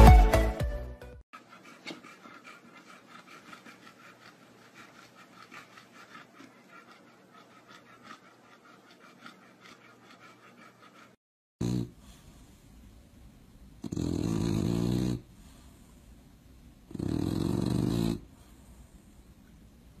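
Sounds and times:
dog panting: 1.4s - 11.2s.

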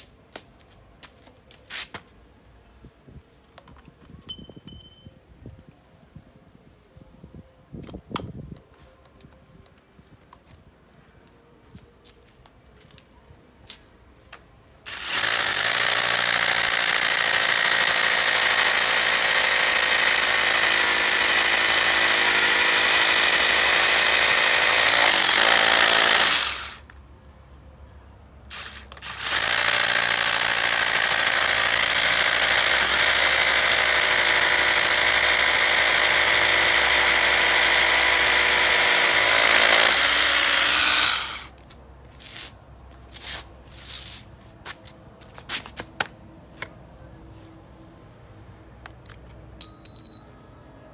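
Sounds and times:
rotary hammer drilling into concrete: 14.9s - 26.9s, 28.5s - 41.5s.

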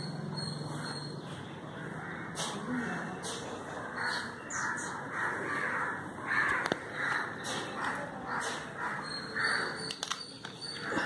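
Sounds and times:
crows cawing: 1.8s - 2.5s, 3.8s - 9.8s.

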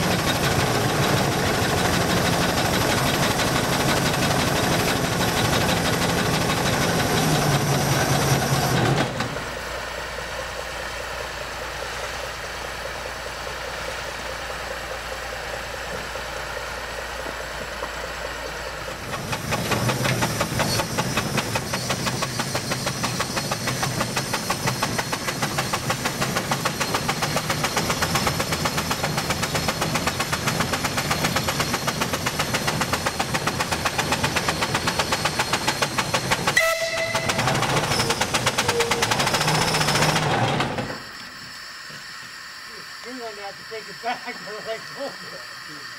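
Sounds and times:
steam engine running: 0.0s - 45.9s.

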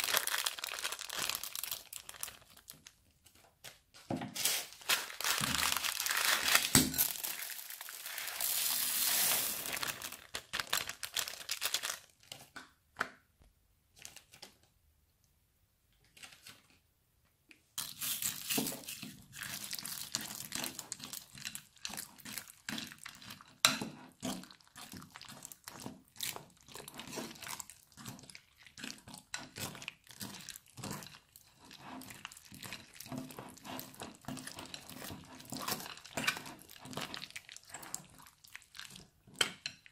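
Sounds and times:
slime with beads squished by hand: 0.0s - 3.4s, 4.3s - 12.4s, 17.9s - 39.2s
plastic bag crinkling: 0.0s - 3.5s, 4.4s - 12.5s
beads pouring: 4.4s - 12.0s.

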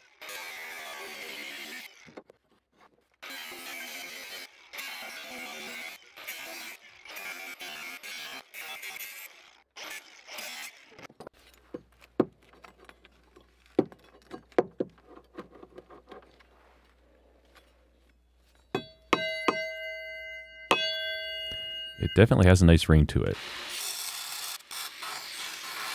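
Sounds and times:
angle grinder cutting steel: 0.0s - 2.2s, 3.2s - 11.1s, 23.4s - 25.9s
struck steel ringing: 18.7s - 22.6s.

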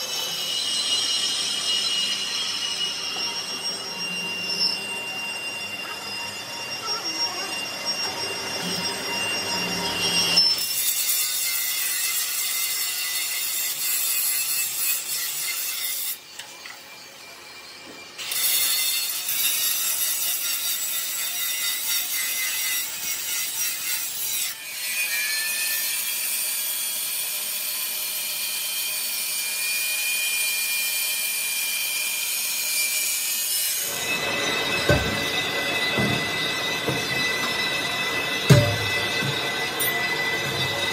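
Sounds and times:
metalworking machine scraping: 0.0s - 16.6s, 32.2s - 40.9s.

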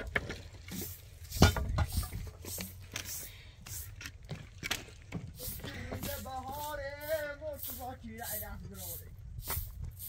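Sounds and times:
broom sweeping dirt: 0.6s - 4.4s, 5.1s - 10.0s.

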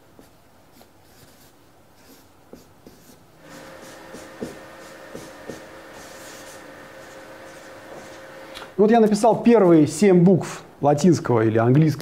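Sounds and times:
marker writing on paper: 0.2s - 8.3s.

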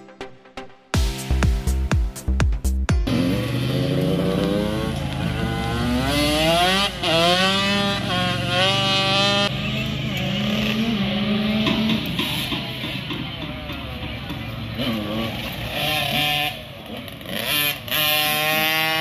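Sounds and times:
dirt bike engine accelerating: 2.9s - 19.0s.

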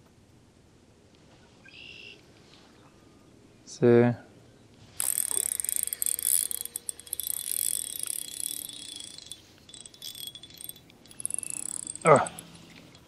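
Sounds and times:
fishing reel whirring click: 5.0s - 13.0s.

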